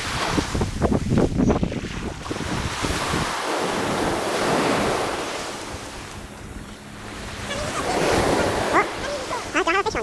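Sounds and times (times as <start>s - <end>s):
small waves breaking on beach: 0.0s - 10.0s
wind buffeting microphone: 0.0s - 10.0s.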